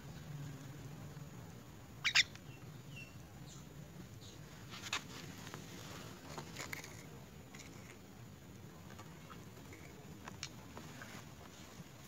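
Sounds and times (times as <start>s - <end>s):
faint high bird peeps: 2.0s - 4.4s.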